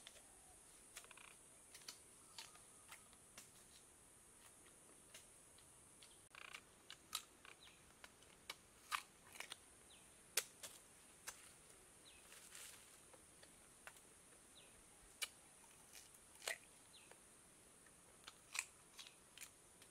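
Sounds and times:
fruit crunching being chewed: 8.4 - 9.6, 18.2 - 19.9.

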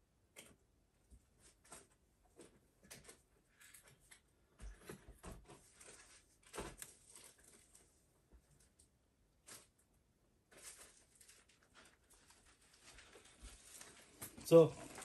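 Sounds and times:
knocks and rustles of rummaging: 1.2 - 8.6, 10.5 - 15.0.

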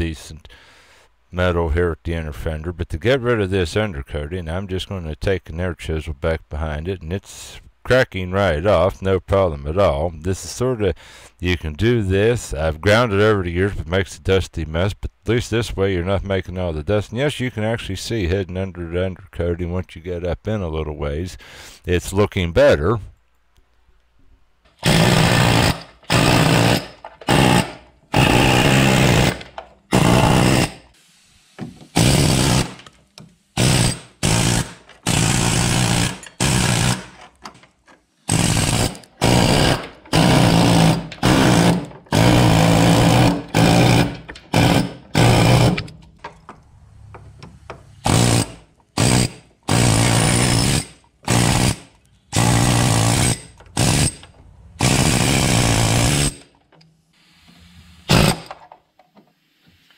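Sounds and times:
pneumatic air chisel hammering metal: 24.8 - 30.9, 33.6 - 37.2, 38.3 - 45.9, 48.0 - 56.5, 57.3 - 58.6.

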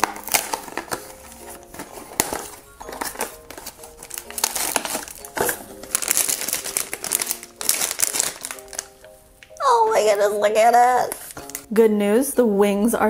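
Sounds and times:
plastic foil bag crinkling: 0.0 - 11.7
soft background music: 0.0 - 13.0.

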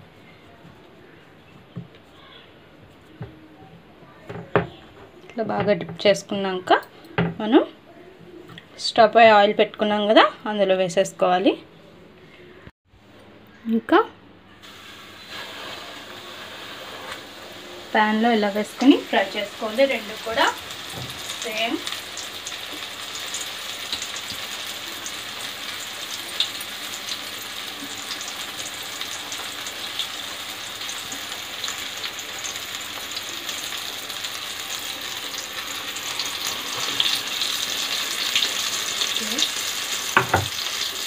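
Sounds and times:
chicken sizzling in oil: 14.6 - 41.0
knock of food into pan: 40.2 - 40.6.

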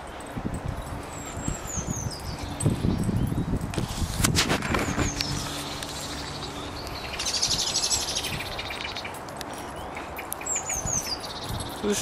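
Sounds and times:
songbirds chirping: 0.0 - 3.9, 4.8 - 12.0
knocks and rustles: 3.6 - 6.0.

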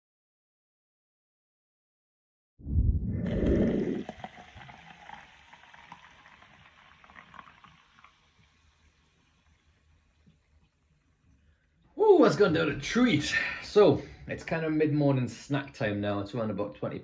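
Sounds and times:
water pouring into a glass: 3.2 - 11.2
carbonation fizzing and crackling: 3.2 - 13.0.

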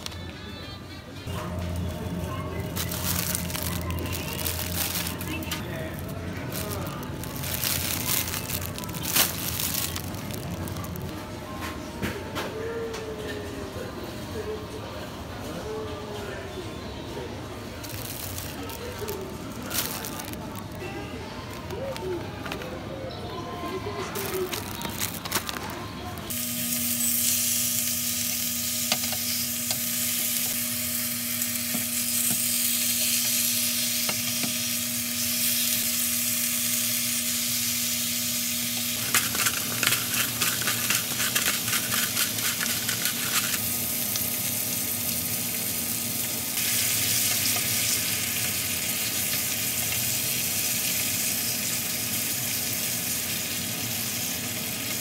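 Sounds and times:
food sizzling in a pan: 26.3 - 55.0.

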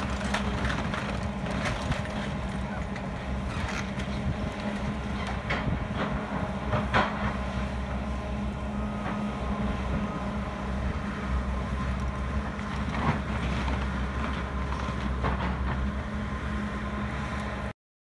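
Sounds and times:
wood cracking and crunching: 0.0 - 4.8
excavator diesel drone: 0.0 - 17.7.

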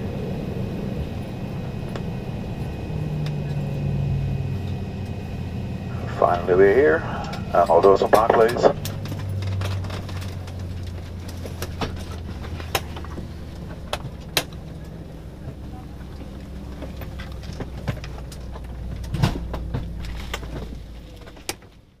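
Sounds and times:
airliner cabin hum: 0.0 - 22.0
clicks and knocks from passengers: 7.2 - 22.0.

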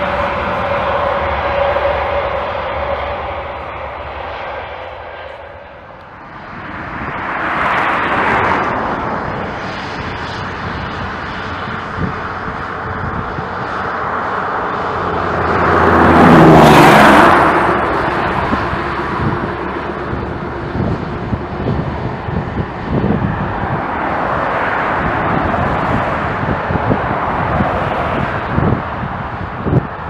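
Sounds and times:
jet engines running: 0.0 - 30.0.

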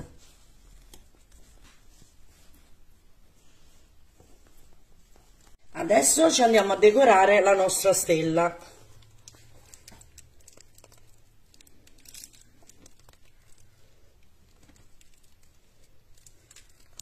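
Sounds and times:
piping bag crinkling: 8.6 - 17.0
small clicks and crackles: 8.9 - 17.0.

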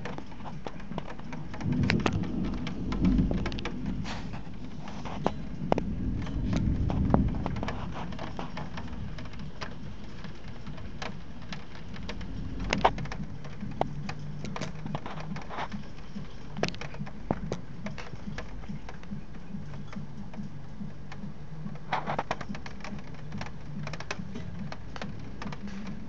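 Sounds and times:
steady rain: 0.0 - 26.0
low thunder rumble: 0.8 - 19.7.

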